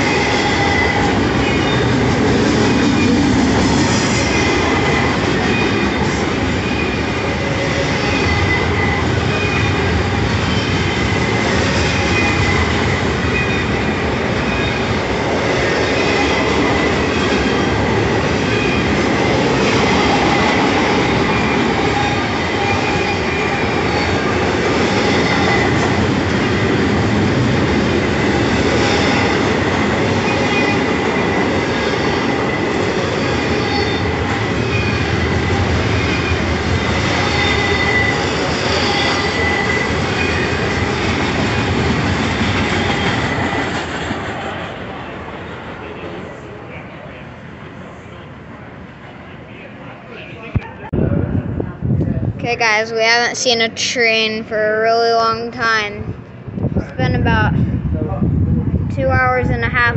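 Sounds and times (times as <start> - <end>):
steel wheels rumbling on rail: 0.0 - 48.7, 56.0 - 59.9
wheel squeals: 33.4 - 41.7.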